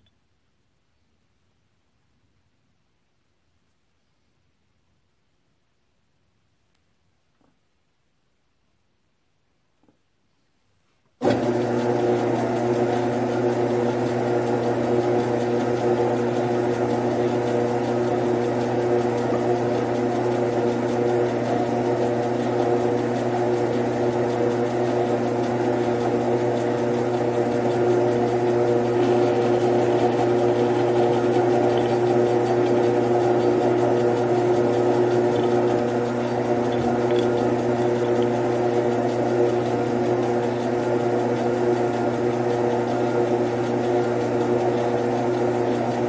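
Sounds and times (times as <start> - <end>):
lathe switching on: 11.2 - 13.2, 24.3 - 41.4
lathe motor whining: 11.2 - 46.0.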